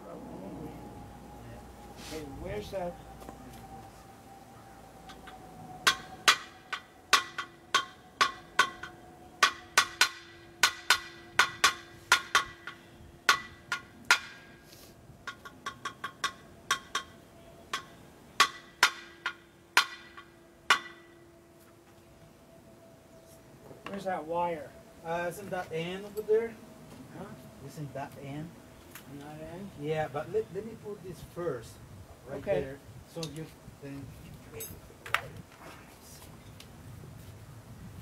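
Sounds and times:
mallet tapping ringing metal: 5.1 - 14.4.

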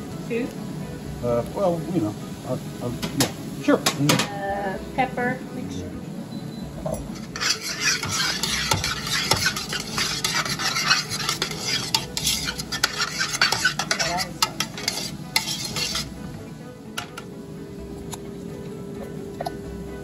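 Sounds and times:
light sizzle: 0.0 - 20.0
spoon scraping a metal pot: 7.0 - 16.2.

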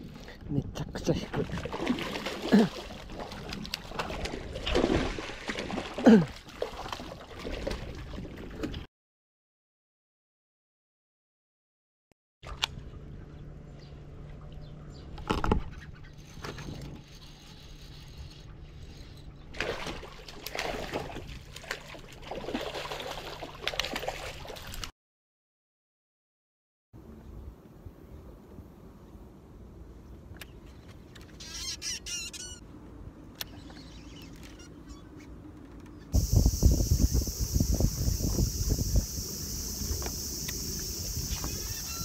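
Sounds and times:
fish splashing in water: 1.4 - 8.3, 19.5 - 24.9.

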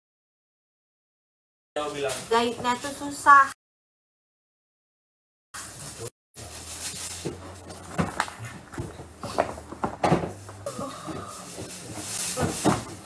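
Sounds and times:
cloth and cardboard rustling: 1.8 - 3.5, 5.6 - 13.0.

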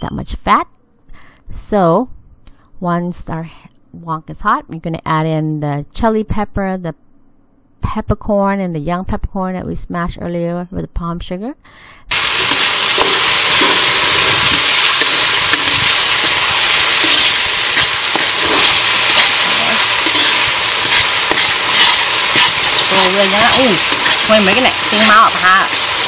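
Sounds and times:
food sizzling in oil: 12.1 - 26.0
metal ladle scraping wok: 12.2 - 26.0.

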